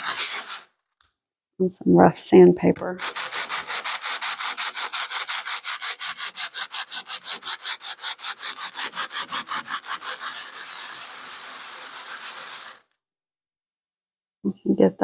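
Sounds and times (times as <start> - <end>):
sanding on coarse sandpaper: 0.0 - 0.7, 3.0 - 12.9.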